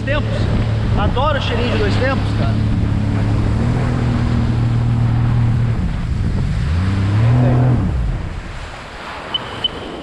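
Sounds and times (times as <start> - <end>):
jet ski engine running: 0.0 - 10.0
water rushing: 0.0 - 10.0
short high beeps: 9.3 - 10.0.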